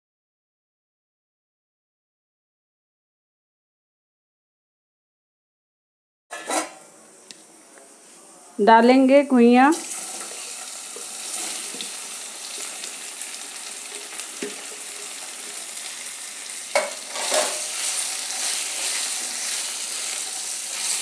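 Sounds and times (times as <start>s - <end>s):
taro sizzling in hot oil: 9.6s - 21.0s.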